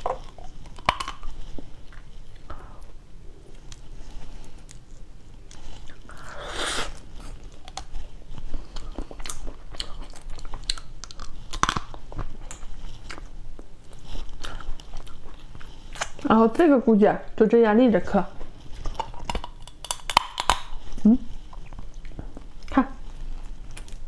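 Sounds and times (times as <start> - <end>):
crab shell cracking: 0.0 - 1.3, 9.3 - 12.6, 18.8 - 20.8
chewing close to microphone: 0.0 - 6.3, 6.9 - 16.3, 18.4 - 24.0.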